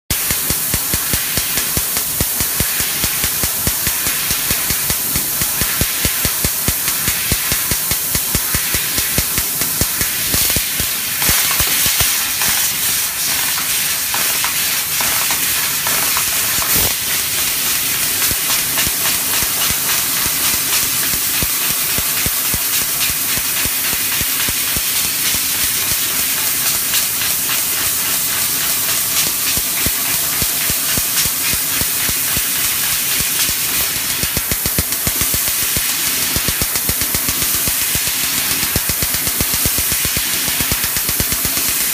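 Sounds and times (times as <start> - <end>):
laser cutter gas hiss: 0.1 - 41.9
short clicks of laser piercing: 27.0 - 41.9.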